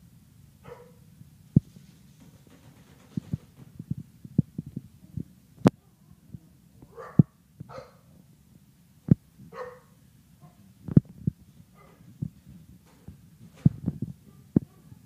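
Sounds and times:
dog barking: 0:00.6 - 0:01.0, 0:06.9 - 0:08.1, 0:09.5 - 0:10.6, 0:11.8 - 0:12.0.

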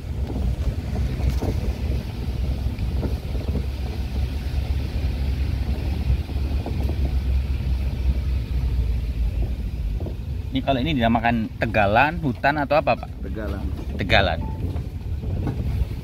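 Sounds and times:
truck engine and road rumble: 0:00.0 - 0:16.0
wind buffeting microphone: 0:00.0 - 0:16.0.

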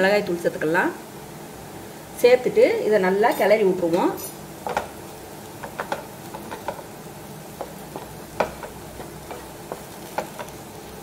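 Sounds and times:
spatula knocking and scraping pan: 0:04.6 - 0:05.0, 0:05.6 - 0:06.9, 0:07.5 - 0:10.8.

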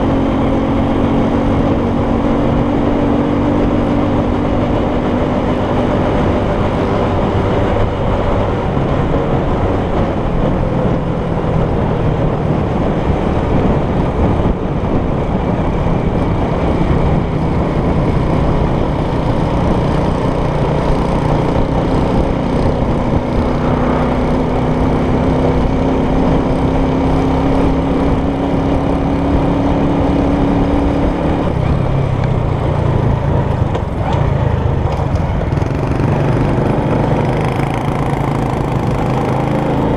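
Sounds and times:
wind and road noise: 0:00.0 - 0:39.9
scooter engine running: 0:14.6 - 0:39.9.

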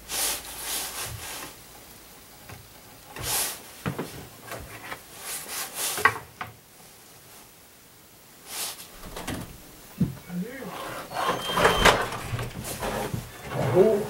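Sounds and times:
wood scraping on worktable: 0:10.7 - 0:14.0.

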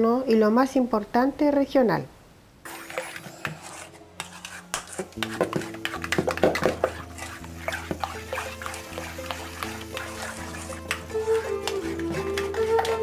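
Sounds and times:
background music: 0:02.7 - 0:13.0
metal spoon scraping bowl: 0:02.7 - 0:13.0.

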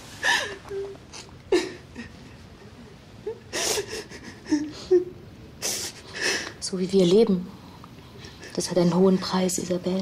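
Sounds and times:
woman crying: 0:00.2 - 0:06.4.

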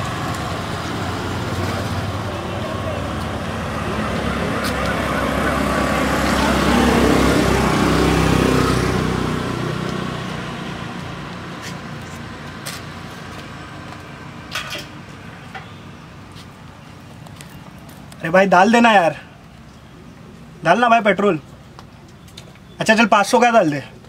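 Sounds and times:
vehicle passing: 0:00.0 - 0:16.2.

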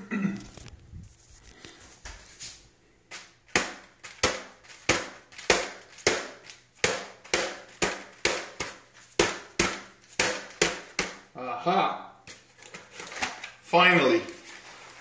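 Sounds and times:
fist knocking plastic helmet: 0:03.5 - 0:11.3.

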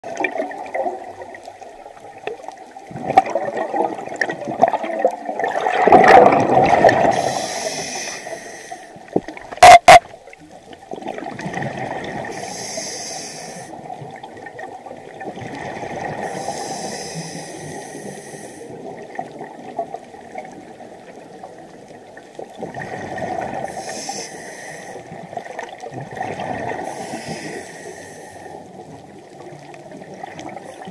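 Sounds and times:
bubbling exhalations: 0:02.9 - 0:07.4
regulator hissing inhalation: 0:07.1 - 0:09.0, 0:12.3 - 0:13.8, 0:16.2 - 0:18.7, 0:23.7 - 0:25.1, 0:26.9 - 0:28.6.

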